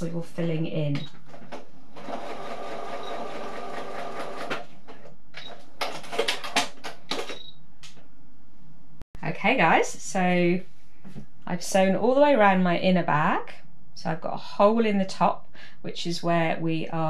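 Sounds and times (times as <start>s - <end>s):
sewing machine stitching: 2.0s - 4.7s.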